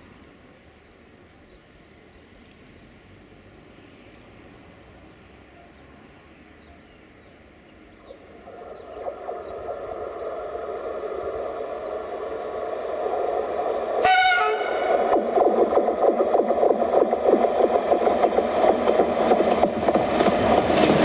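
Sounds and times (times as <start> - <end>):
electric locomotive running: 6.3 - 21.0
wheels clattering over rail joints: 10.8 - 21.0
locomotive horn blast: 14.0 - 15.1.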